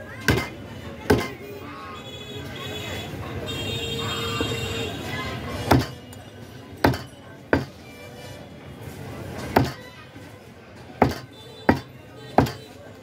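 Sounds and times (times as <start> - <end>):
knife chopping on wooden block: 5.7 - 6.0, 6.8 - 7.7, 9.5 - 9.8, 11.0 - 12.6.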